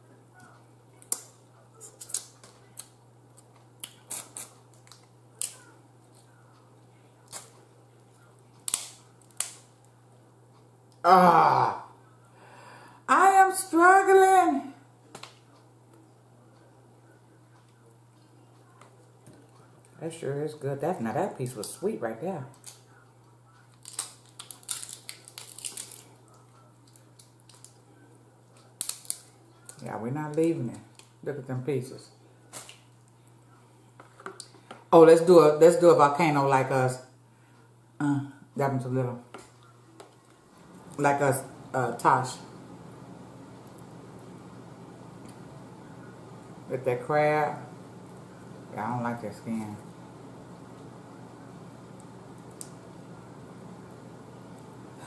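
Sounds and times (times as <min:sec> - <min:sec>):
faint low hum: 0:00.0 - 0:55.0
crab shells cracking: 0:01.0 - 0:06.3, 0:08.6 - 0:09.8, 0:23.7 - 0:27.8, 0:28.6 - 0:29.8, 0:30.9 - 0:31.2.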